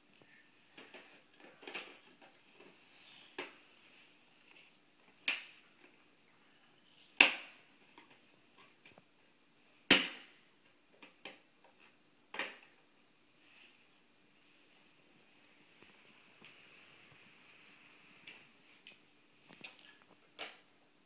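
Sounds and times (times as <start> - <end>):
plastic toys clacking: 0.8 - 2.7.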